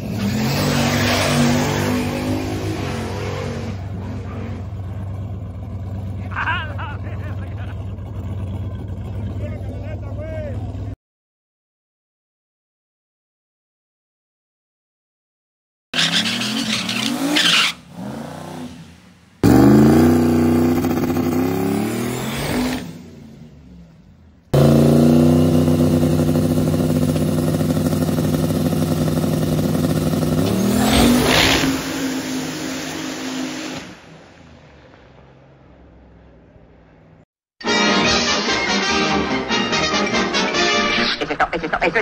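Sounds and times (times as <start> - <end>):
truck engine revving: 0.0 - 11.0, 16.0 - 34.4.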